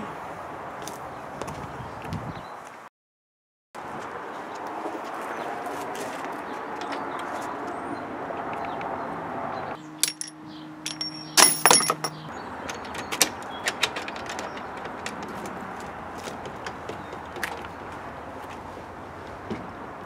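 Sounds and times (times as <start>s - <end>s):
outdoor background noise: 0.0s - 2.9s, 3.8s - 20.0s
metal tools clanking in a cart: 10.0s - 12.3s.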